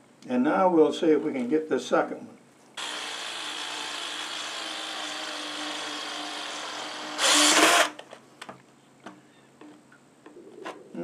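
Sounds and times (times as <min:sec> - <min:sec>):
cordless drill driving screw into wood: 0:02.8 - 0:08.0.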